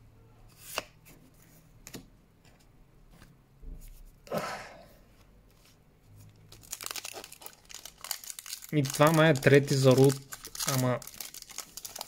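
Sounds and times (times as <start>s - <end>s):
card rustle: 6.6s - 12.0s.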